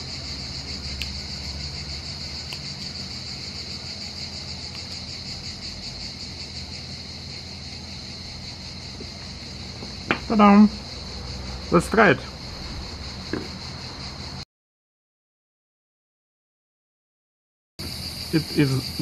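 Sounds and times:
insects chirring: 0.0 - 14.4, 17.8 - 19.0.

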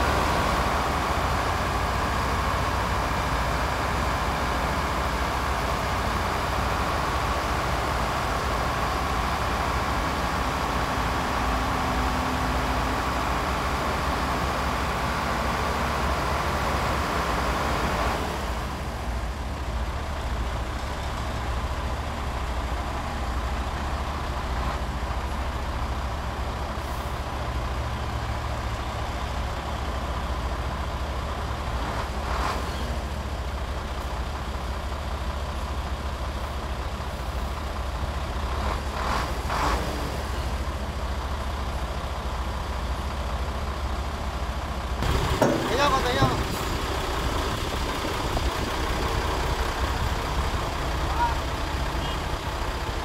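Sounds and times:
diesel truck engine running: 0.0 - 53.0
hydraulic hoist rushing: 45.0 - 48.4.

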